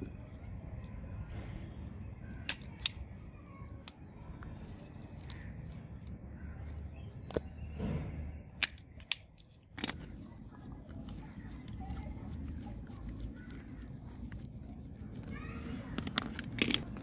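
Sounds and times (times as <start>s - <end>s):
screwdriver scraping and handling: 15.9s - 17.0s.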